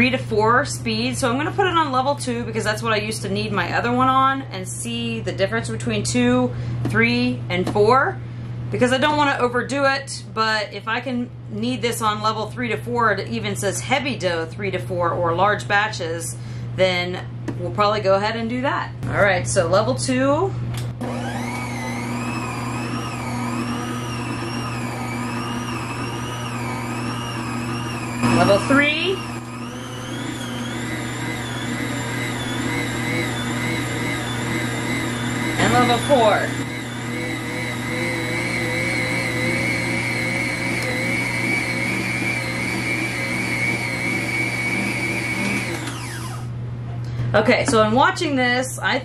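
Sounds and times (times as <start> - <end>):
stand mixer motor humming: 21.0 - 46.6.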